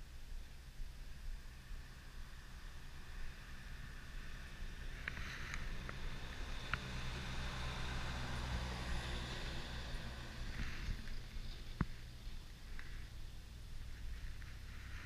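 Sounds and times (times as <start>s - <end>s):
truck passing: 1.5s - 15.0s.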